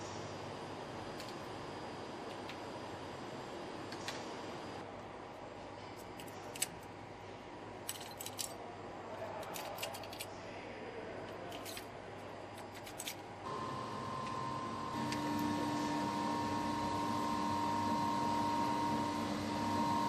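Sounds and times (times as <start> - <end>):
steady background hum: 0.0 - 20.0.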